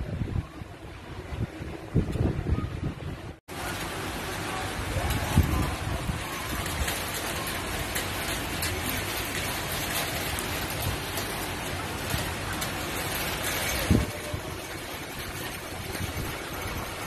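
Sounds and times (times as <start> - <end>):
steady rain falling: 3.4 - 17.0.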